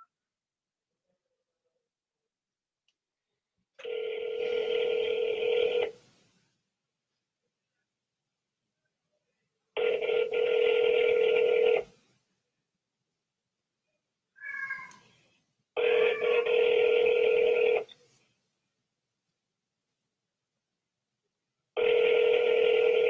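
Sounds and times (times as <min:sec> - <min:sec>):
telephone ringback tone: 0:03.8 - 0:06.0, 0:09.8 - 0:11.9, 0:15.8 - 0:17.9, 0:21.8 - 0:23.0.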